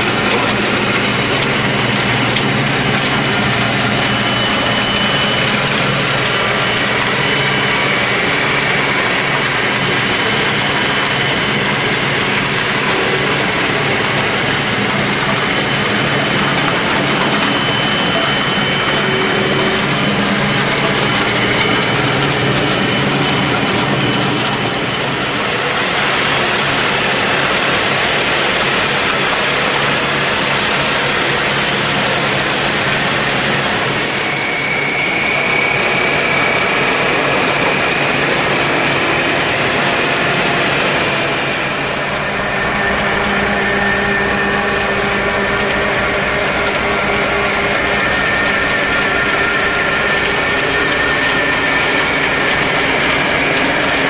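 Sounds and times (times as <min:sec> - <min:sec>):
faint high whine: 0:00.0 - 0:54.0
harvester machinery rattle: 0:00.0 - 0:54.0
tractor engine drone: 0:00.0 - 0:54.0.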